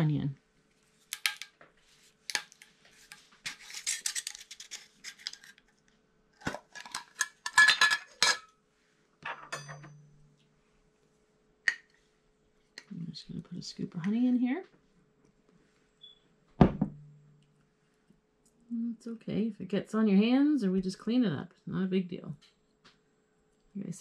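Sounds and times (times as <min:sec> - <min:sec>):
utensils and glass jars clinking: 0:06.6 - 0:08.5, 0:09.3 - 0:09.9.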